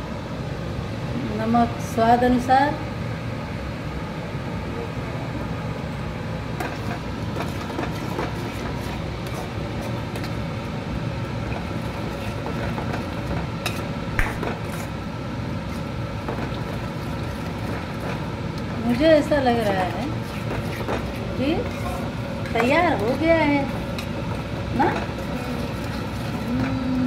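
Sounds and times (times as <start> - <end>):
steady rumbling background noise: 0.0 - 27.0.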